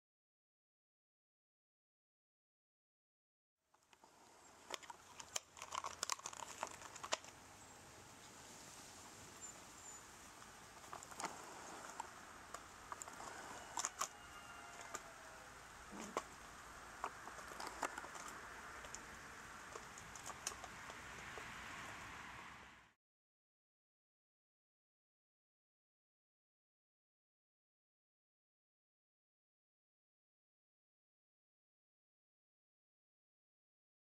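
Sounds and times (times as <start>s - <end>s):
light rain pattering: 3.8s - 22.9s
steady hiss: 7.1s - 22.9s.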